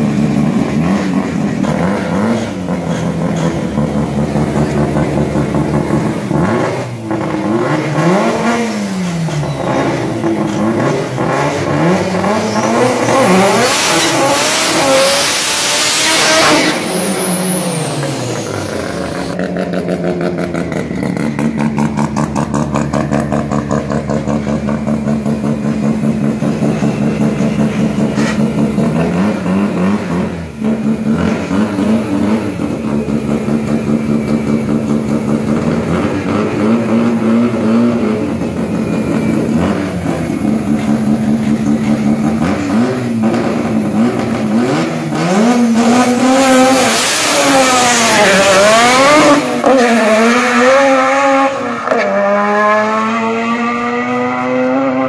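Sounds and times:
rotary engine idling unevenly: 0.0s - 6.4s, 38.3s - 44.5s.

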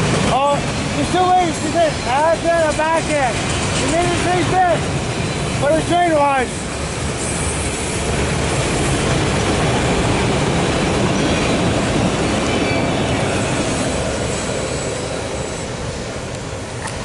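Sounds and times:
freight train wheels rumbling on rails: 0.0s - 17.0s
faint wheel squeal: 12.5s - 15.9s.

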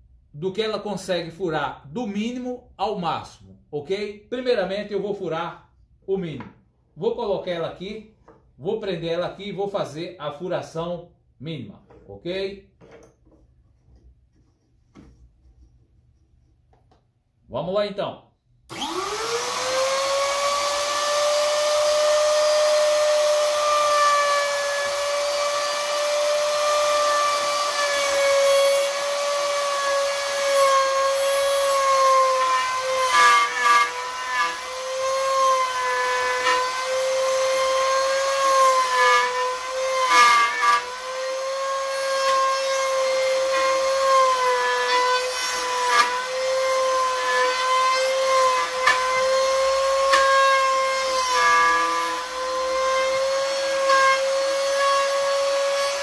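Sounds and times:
power tool motor whining: 18.7s - 31.7s.

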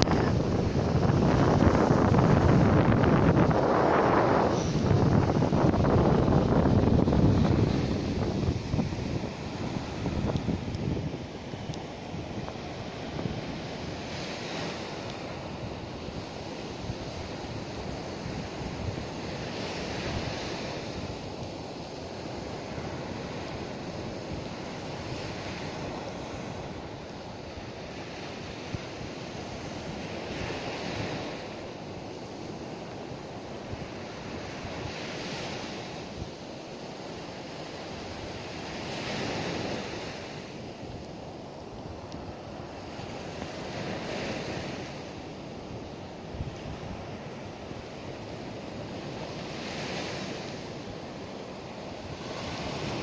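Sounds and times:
surf breaking on beach: 0.0s - 53.0s
wind buffeting microphone: 0.0s - 53.0s.

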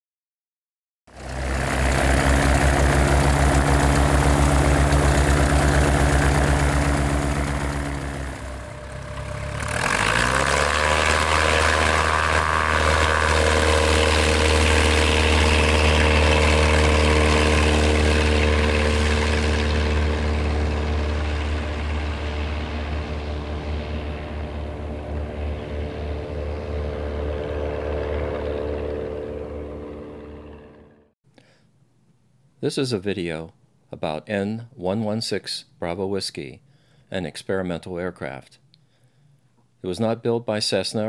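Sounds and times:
light airplane engine and propeller: 1.1s - 31.5s.

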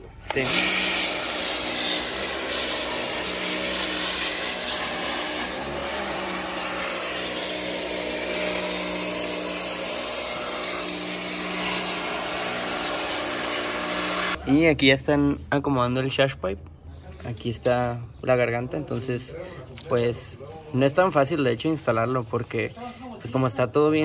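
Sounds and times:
pressure washer motor hum: 0.0s - 14.4s
water jet hissing: 0.3s - 14.4s.

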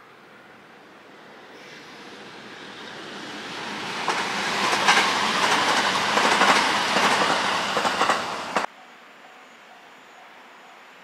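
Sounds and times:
electric train passing: 0.3s - 8.7s
wheels clicking over rail joints: 4.0s - 8.7s.

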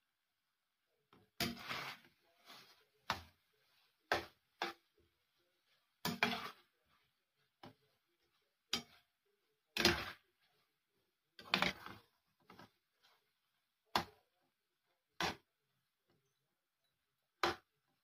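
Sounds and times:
spatula scraping a steel pan: 1.4s - 10.7s, 11.4s - 13.3s.

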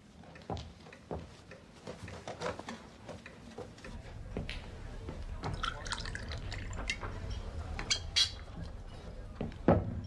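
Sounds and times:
whiskey pouring into a glass: 5.6s - 6.8s.

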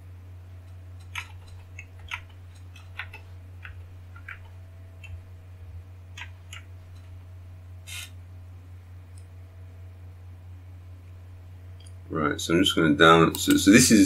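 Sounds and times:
low electrical hum: 0.0s - 14.0s
keyboard keys clicking: 1.0s - 5.2s.

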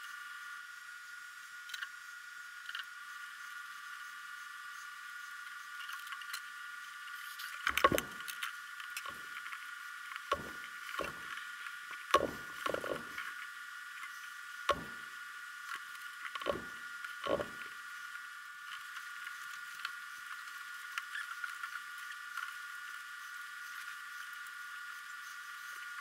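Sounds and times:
steady high hiss: 0.0s - 26.0s
soft knocks and rubs on wood: 10.3s - 11.2s, 12.2s - 13.2s, 14.7s - 15.0s, 16.4s - 17.6s.

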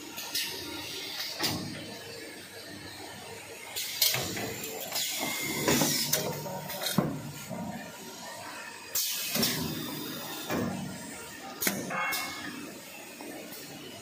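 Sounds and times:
pneumatic pushers hissing clacks: 3.8s - 7.5s, 8.9s - 12.6s.

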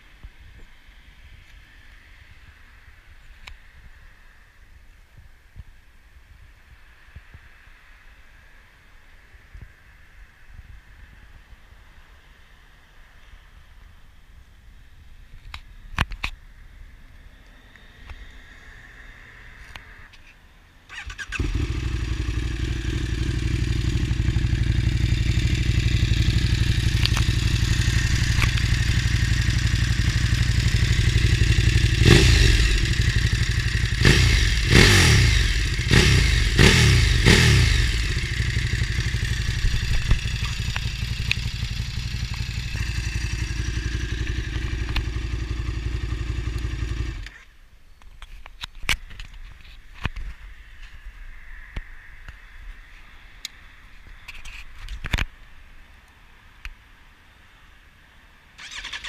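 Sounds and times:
motorcycle engine idling and revving: 20.9s - 47.6s, 58.6s - 59.0s.

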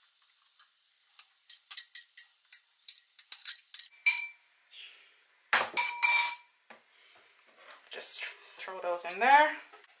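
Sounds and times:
glass clinking: 1.2s - 4.4s, 5.8s - 6.6s.

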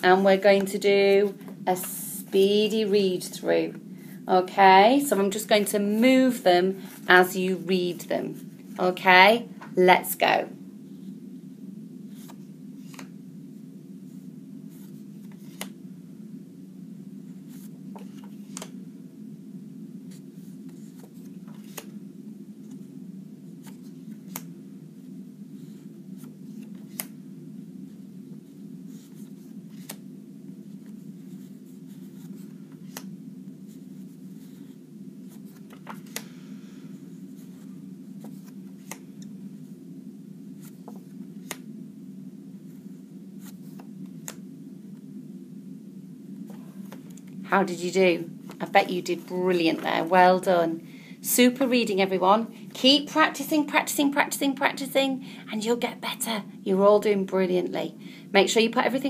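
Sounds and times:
steady low hum: 0.0s - 59.0s
flashcards flipping: 20.9s - 21.9s, 35.3s - 36.4s, 38.2s - 39.0s.

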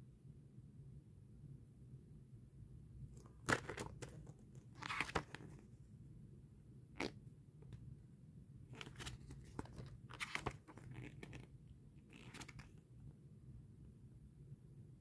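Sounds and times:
low steady hum: 0.0s - 15.0s
pages being turned: 3.2s - 5.6s, 8.7s - 11.5s, 12.1s - 12.8s.

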